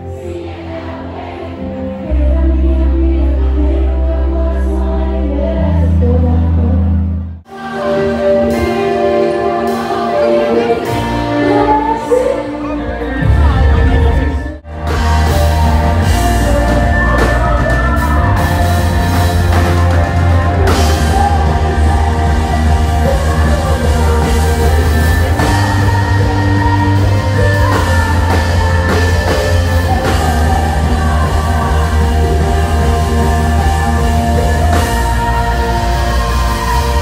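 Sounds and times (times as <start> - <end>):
heavy bass: 1.6 - 37.0
electric guitar: 7.1 - 37.0
drums: 7.5 - 37.0.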